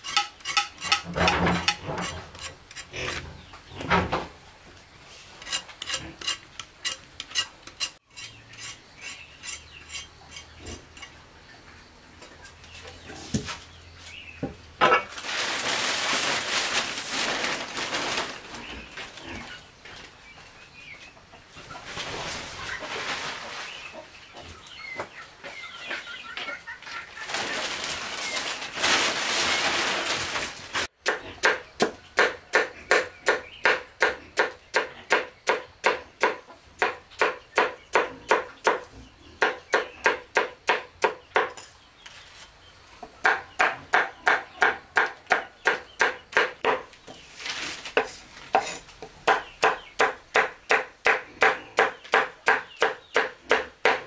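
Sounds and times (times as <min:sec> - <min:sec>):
chickens clucking: 0:17.7 - 0:28.6, 0:31.1 - 0:47.3.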